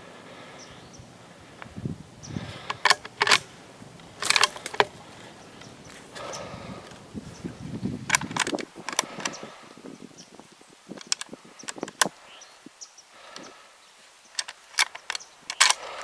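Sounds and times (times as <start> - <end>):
sharp clicks: 2.5 - 7.0, 8.0 - 9.5, 11.0 - 12.2, 14.3 - 16.0.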